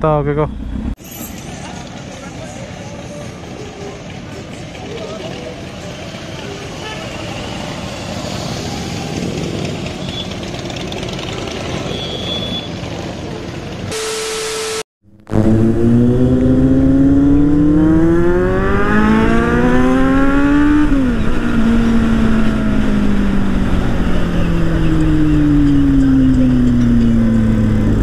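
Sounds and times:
street traffic: 0.0s - 28.0s
motorcycle engine accelerating: 14.6s - 28.0s.

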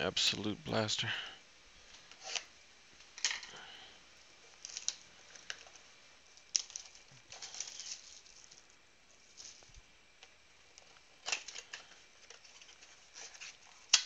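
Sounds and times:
cardboard and packaging rustling: 4.4s - 14.0s.

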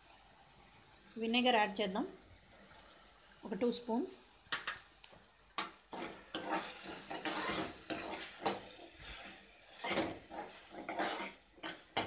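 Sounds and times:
vegetables sizzling in hot oil: 0.0s - 12.0s
metal ladle scraping a pan: 5.9s - 12.0s.

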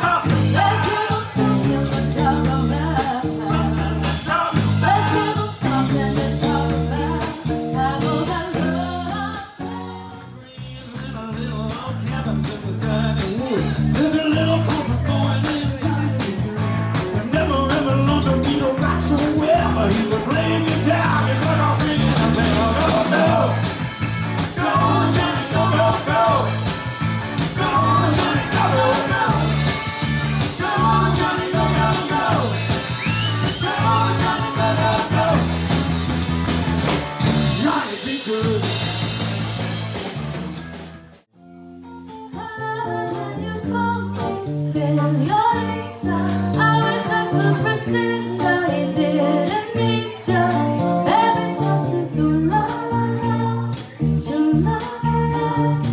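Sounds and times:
people singing together: 0.0s - 10.4s, 19.2s - 26.8s, 27.4s - 36.0s, 46.1s - 54.0s
drum kit beat: 0.0s - 41.3s
live rock band playing: 0.0s - 55.9s.

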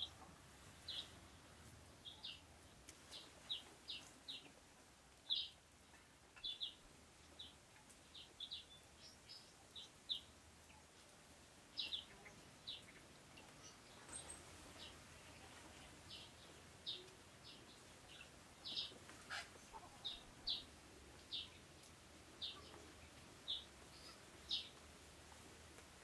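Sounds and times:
bird chirping: 0.0s - 1.2s, 5.2s - 10.9s, 11.7s - 20.7s, 22.4s - 24.8s
faint outdoor background noise: 0.0s - 26.0s.

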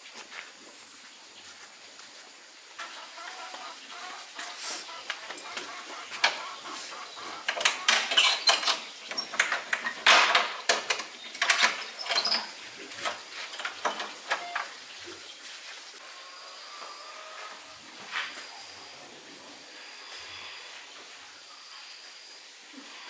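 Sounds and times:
irregular knocks and clatters: 5.1s - 14.6s.

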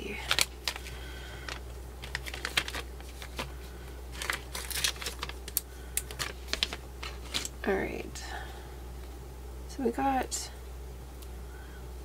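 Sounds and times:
plastic bag crinkling: 0.1s - 7.5s.

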